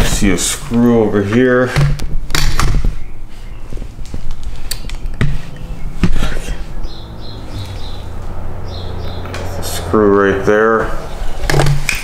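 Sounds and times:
steady low hum: 3.1 - 11.3.

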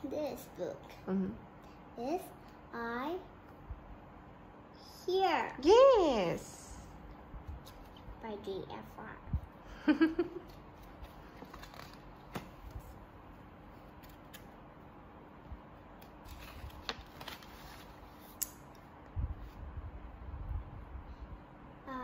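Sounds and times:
book pages rustling: 7.5 - 8.2, 10.4 - 13.0, 13.6 - 14.6, 15.9 - 18.4.

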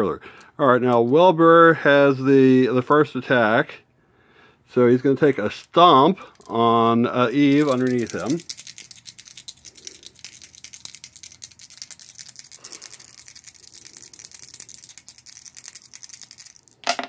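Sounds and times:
dice rattling in a hand: 6.4 - 17.0.

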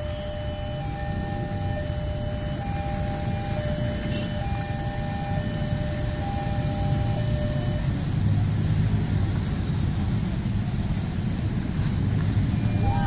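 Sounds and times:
faint steady tones: 0.0 - 9.1, 9.7 - 13.0
motorcycle engines rumbling: 0.0 - 13.0.

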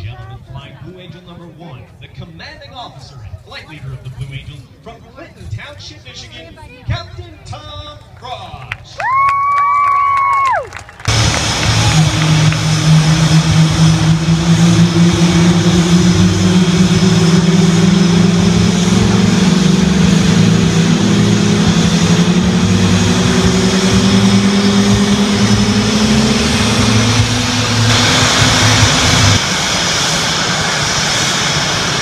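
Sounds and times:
jet engine whine rising: 10.4 - 32.0
hissing rush of jet noise: 11.1 - 32.0.

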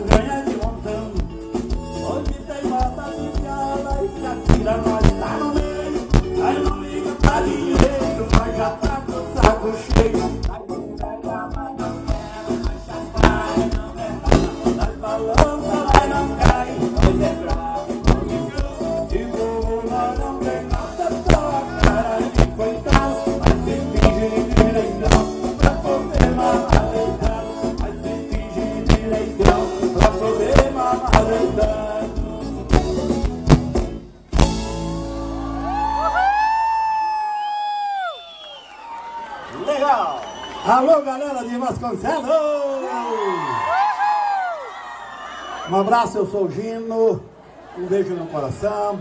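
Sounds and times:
live band playing dance music: 0.0 - 38.1.

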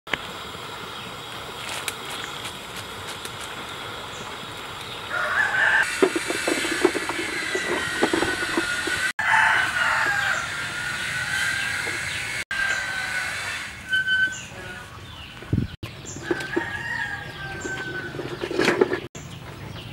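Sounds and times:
rooster crowing: 5.1 - 6.0, 7.5 - 14.0, 16.2 - 18.4.

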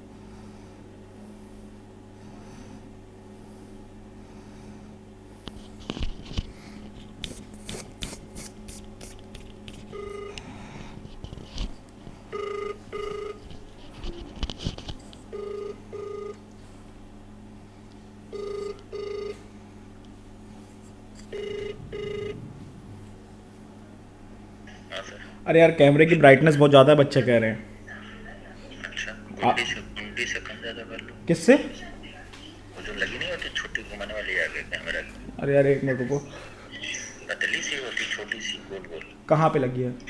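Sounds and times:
phone ringback double beeps: 10.0 - 10.4, 12.3 - 13.4, 15.3 - 16.4, 18.3 - 19.4, 21.3 - 22.4.

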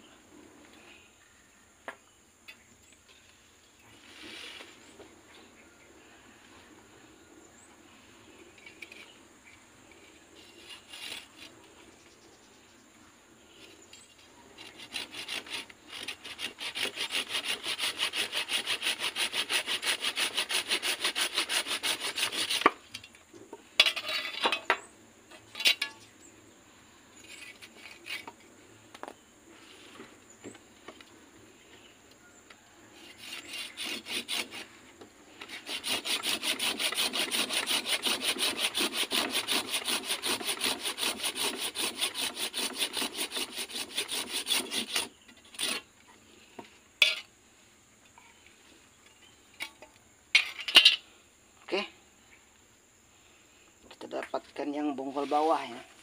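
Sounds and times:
hand saw cutting wood: 10.4 - 11.6, 14.6 - 22.8, 33.0 - 34.7, 35.4 - 45.9.

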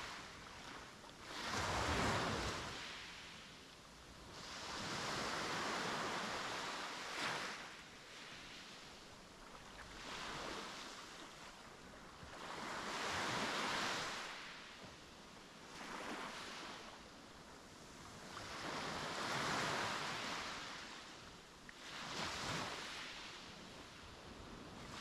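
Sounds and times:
sea waves breaking on beach: 0.0 - 3.5, 4.3 - 8.8, 12.3 - 14.7, 15.7 - 16.9, 18.2 - 21.2, 21.8 - 24.0.

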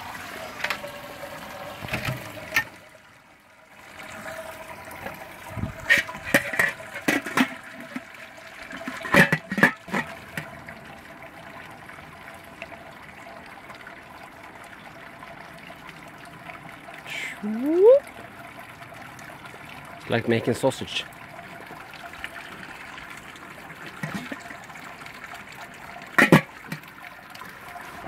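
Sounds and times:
liquid trickling and splashing: 0.0 - 28.0
lid and hose clattering: 1.8 - 2.8, 4.2 - 10.6, 24.0 - 24.4, 26.2 - 26.9.

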